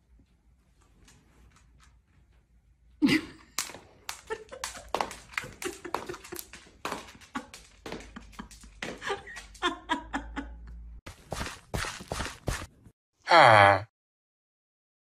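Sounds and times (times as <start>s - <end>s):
slipper slapping on wooden floor: 11.1s - 12.7s.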